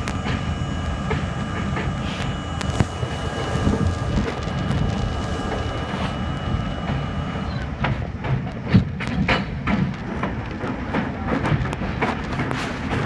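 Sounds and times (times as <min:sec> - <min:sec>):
subway train rumble: 0:00.0 - 0:13.0
train whine: 0:00.0 - 0:13.0
wheels clacking over rail joints: 0:05.5 - 0:13.0.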